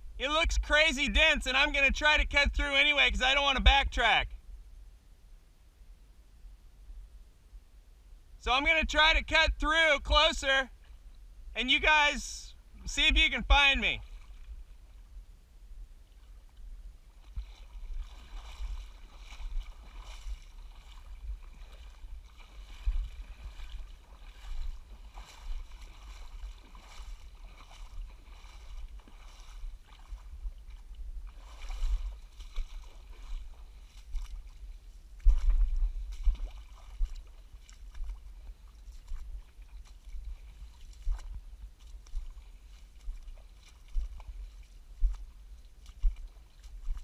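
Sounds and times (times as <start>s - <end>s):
water sloshing and splashing: 14.0s - 15.2s, 16.0s - 47.0s
wind buffeting microphone: 17.2s - 34.5s, 35.2s - 39.5s.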